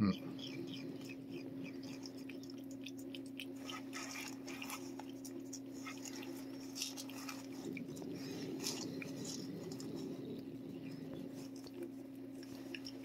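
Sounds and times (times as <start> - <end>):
steady low hum: 0.0 - 13.0
cat licking wet smacks: 1.1 - 10.0.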